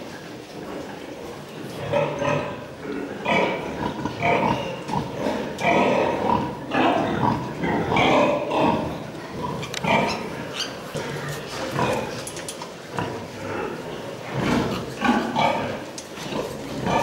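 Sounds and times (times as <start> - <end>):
pigs grunting: 1.7 - 17.0.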